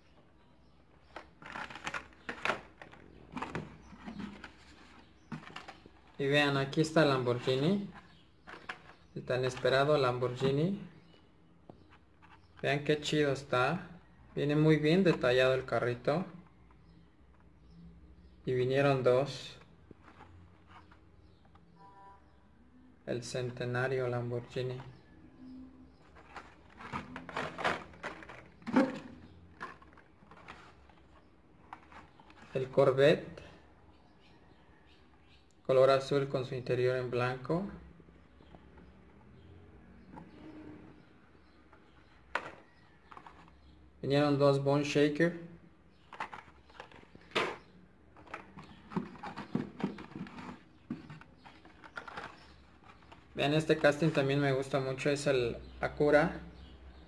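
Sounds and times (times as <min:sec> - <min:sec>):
plastic and card crackling: 0:00.9 - 0:06.4, 0:07.0 - 0:10.5, 0:26.0 - 0:32.6, 0:46.0 - 0:54.3.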